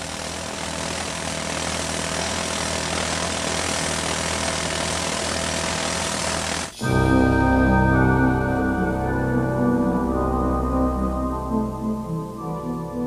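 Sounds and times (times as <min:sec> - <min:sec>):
pneumatic breakers chipping concrete: 0:00.0 - 0:06.8
low hum: 0:06.8 - 0:13.0.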